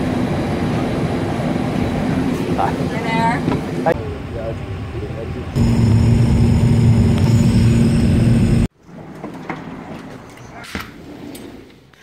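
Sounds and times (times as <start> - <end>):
airliner cabin noise: 0.0 - 8.7.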